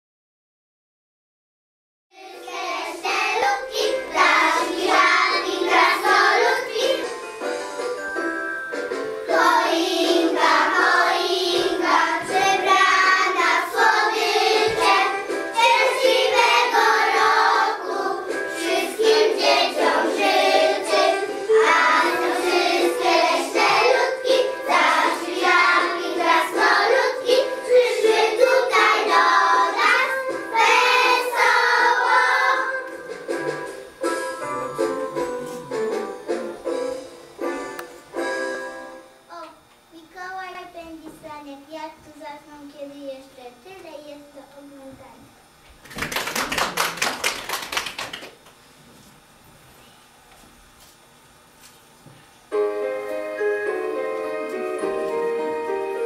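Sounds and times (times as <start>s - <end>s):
children singing in unison: 9.3s - 32.9s.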